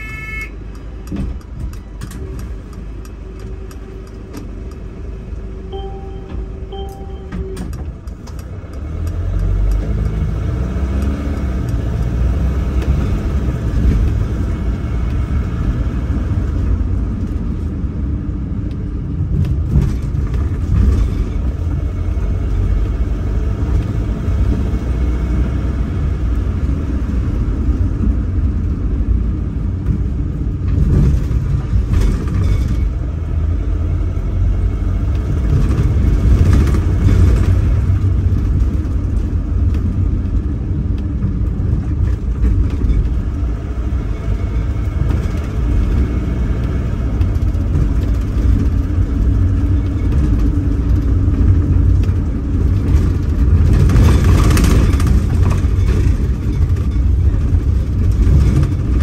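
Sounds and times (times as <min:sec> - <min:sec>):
short beeping tone: 0:00.0 - 0:00.6, 0:05.7 - 0:07.7
bus engine rumbling: 0:00.0 - 0:59.0.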